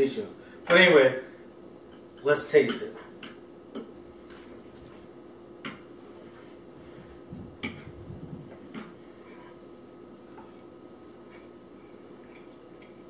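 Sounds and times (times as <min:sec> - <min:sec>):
fork scraping plate: 0:09.2 - 0:09.6.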